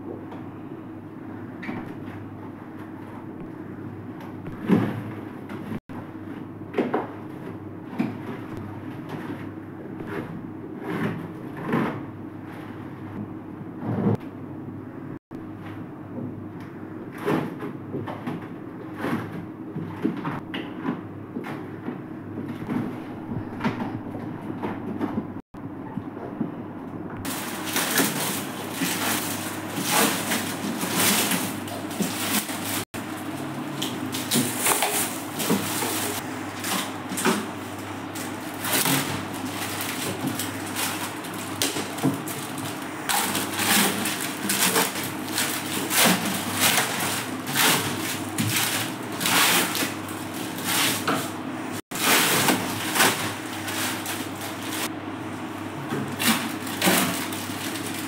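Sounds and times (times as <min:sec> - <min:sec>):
steady low hum: 0:00.0 - 0:58.0
plastic film crinkling: 0:27.3 - 0:33.4, 0:52.0 - 0:54.9, 0:56.1 - 0:58.0.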